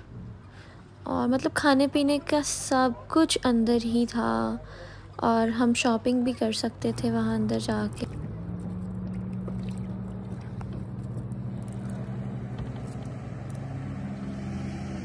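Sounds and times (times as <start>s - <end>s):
boat motor humming: 3.2s - 15.0s.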